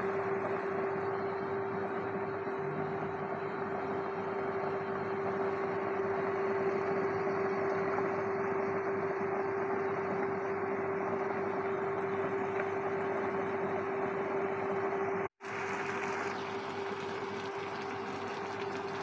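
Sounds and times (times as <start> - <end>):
induction cooktop humming: 0.0 - 19.0.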